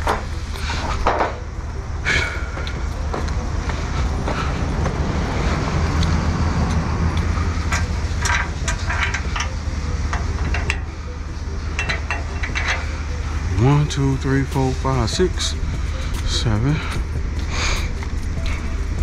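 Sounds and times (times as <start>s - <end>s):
metal knocks and clanks: 0.0s - 1.5s, 7.6s - 11.0s, 11.7s - 13.1s
diesel truck engine idling: 0.0s - 19.0s
footsteps on gravel: 2.4s - 7.4s, 13.6s - 19.0s.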